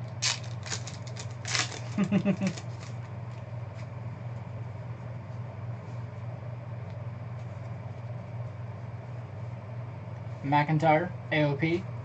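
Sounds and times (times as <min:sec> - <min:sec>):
low hum: 0:00.0 - 0:12.0
trading cards rustling: 0:00.2 - 0:02.9.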